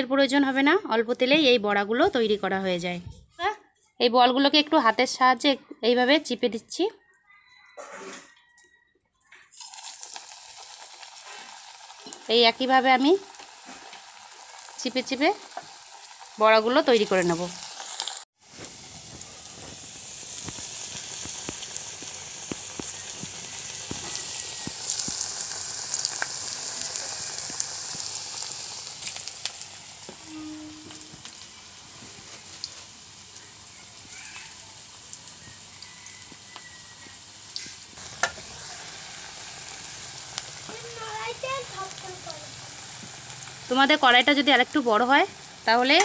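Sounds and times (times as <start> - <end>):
oil popping and crackling: 9.5 - 46.0
patties sizzling in hot oil: 9.5 - 46.0.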